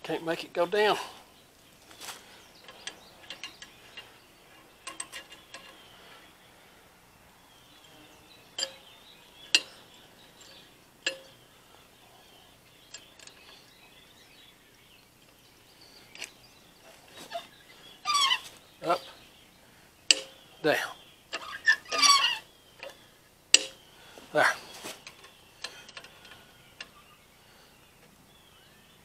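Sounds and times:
metallic clicks of hydrant handle: 2.6s - 4.1s, 4.8s - 5.8s, 20.1s - 20.4s, 22.8s - 23.8s.

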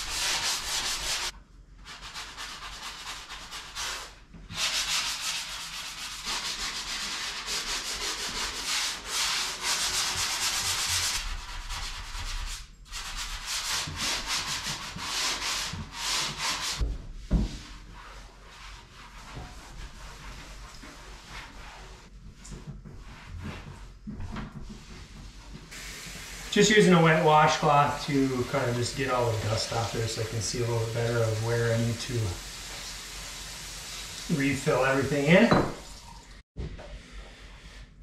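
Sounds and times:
sanding block rasping: 0.0s - 1.3s, 1.9s - 16.8s.

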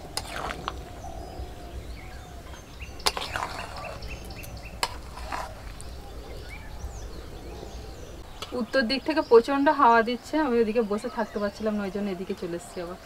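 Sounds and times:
spatula stirring sticky food: 0.0s - 1.0s, 2.6s - 6.2s
birds chirping: 0.0s - 13.0s
low wind rumble: 0.0s - 13.0s.

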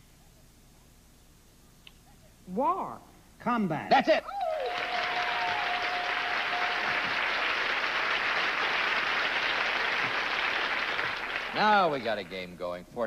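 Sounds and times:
studio audience applauding: 4.4s - 12.6s.

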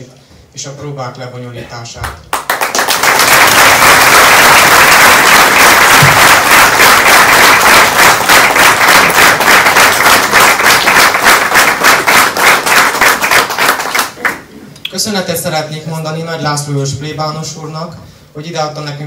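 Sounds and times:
audience applauding: 2.3s - 14.5s.

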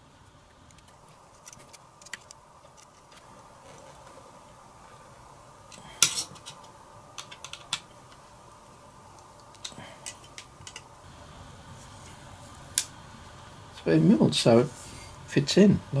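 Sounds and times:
small parts and tools clicking: 0.6s - 3.9s, 5.7s - 8.2s, 9.1s - 10.9s.

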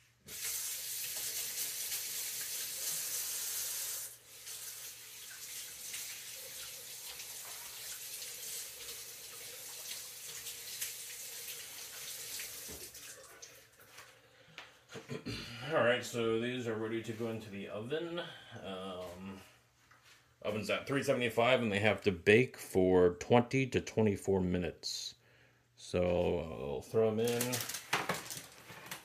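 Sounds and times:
faucet running into sink: 0.3s - 13.6s
hands washing under water: 4.3s - 14.2s.

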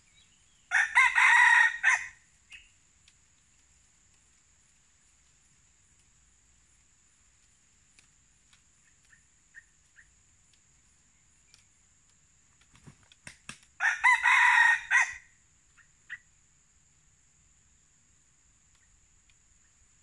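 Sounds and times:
rooster crowing: 0.7s - 2.2s, 13.8s - 15.3s
sharp claps: 12.8s - 13.7s.

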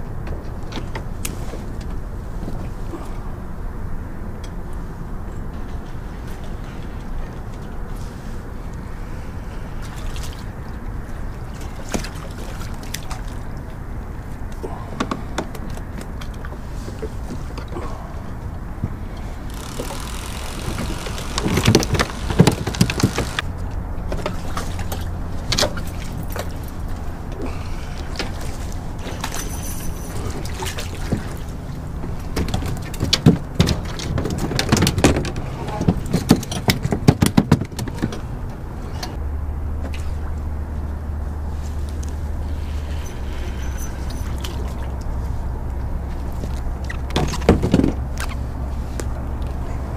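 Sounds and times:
steady low rumble: 0.0s - 33.6s, 38.2s - 47.1s
faint water sounds: 1.2s - 33.0s, 38.7s - 49.9s
low rumble: 39.2s - 46.9s.

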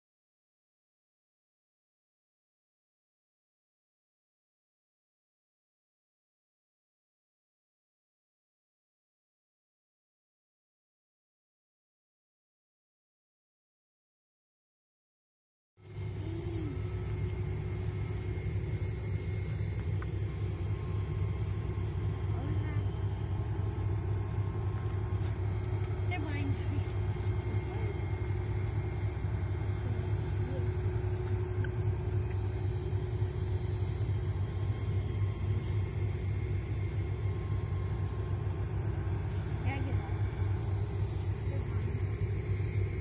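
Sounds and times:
faint high whine: 15.8s - 43.0s
steady low rumble: 15.8s - 43.0s.

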